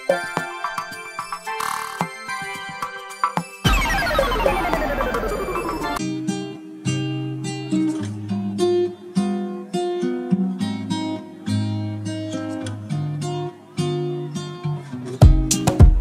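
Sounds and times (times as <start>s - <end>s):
acoustic guitar plucking melody: 0.0s - 16.0s
falling electronic sweep: 3.7s - 6.0s.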